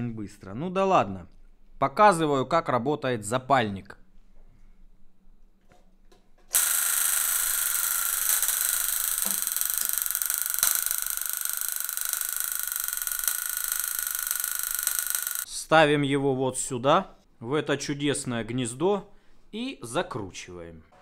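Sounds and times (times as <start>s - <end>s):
igniter sparks electric buzz: 6.5s - 15.5s.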